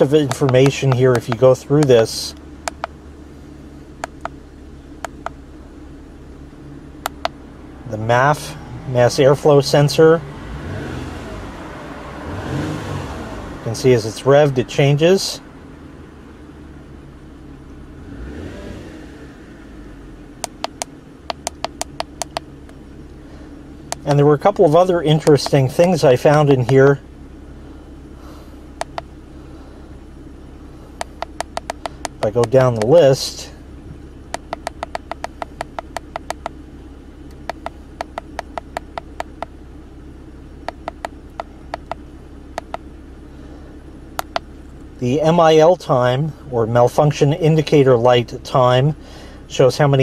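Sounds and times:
car engine idling and revving: 0.0s - 50.0s
button clicks: 0.2s - 1.9s, 2.6s - 3.0s, 4.0s - 4.4s, 7.0s - 7.4s, 20.4s - 22.5s, 28.8s - 29.1s, 31.0s - 32.9s, 34.3s - 36.6s, 37.3s - 39.5s, 40.6s - 42.0s, 42.6s - 42.8s, 44.2s - 44.5s.

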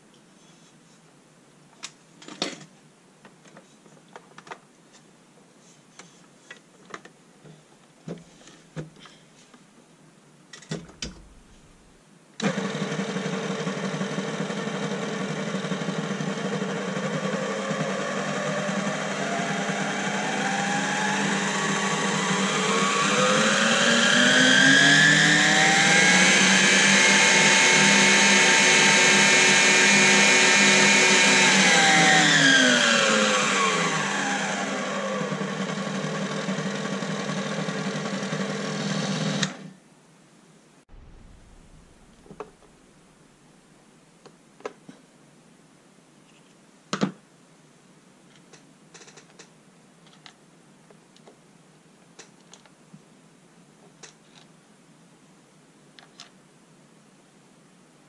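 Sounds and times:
stand mixer motor whining: 12.4s - 39.6s.

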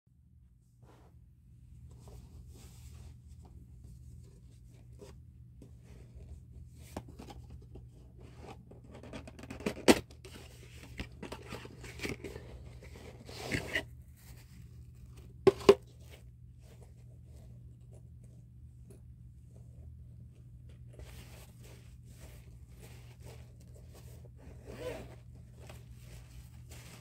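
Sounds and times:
cardboard box scraping: 11.8s - 13.9s.

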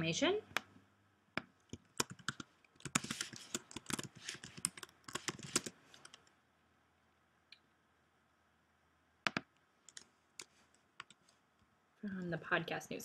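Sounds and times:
typing on computer keyboard: 1.7s - 6.3s, 9.3s - 11.2s.

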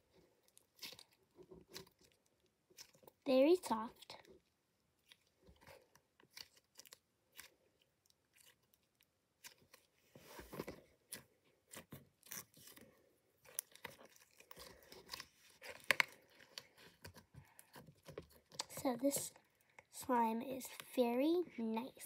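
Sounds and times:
sticky slime crackles and pops: 13.4s - 18.8s.

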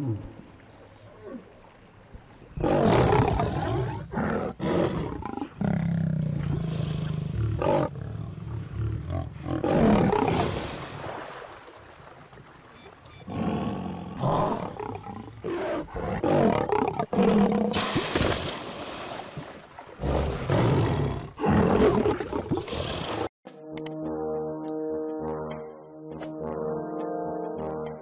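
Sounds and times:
lion growling and roaring: 2.6s - 10.6s, 13.3s - 17.8s, 20.0s - 23.3s.

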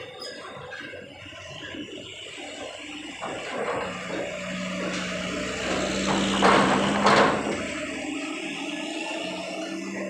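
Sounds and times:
diesel truck driving over steel ramp: 0.0s - 10.0s.

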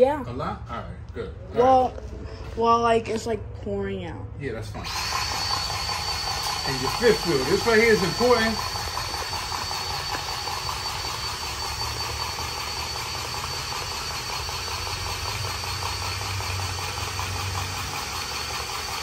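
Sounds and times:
grease gun motor humming: 4.8s - 19.0s.

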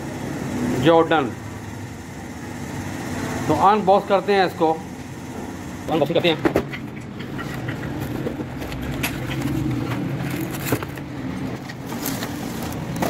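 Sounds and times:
foam packing rustling: 8.0s - 13.0s.

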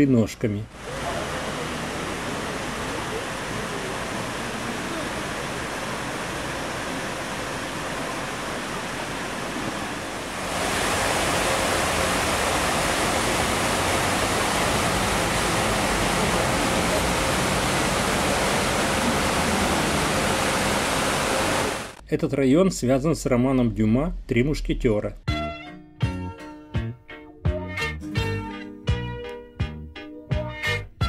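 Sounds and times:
fountain water splashing: 0.7s - 22.0s.

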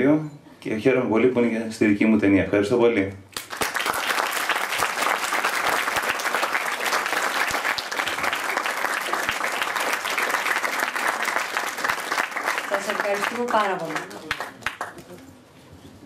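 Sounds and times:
audience applauding: 3.4s - 15.2s.

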